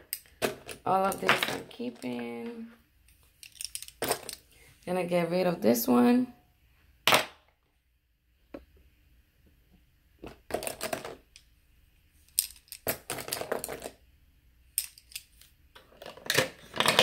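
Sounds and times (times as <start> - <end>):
makeup brushes clattering: 0.0 - 2.7, 12.3 - 14.0, 14.8 - 17.0.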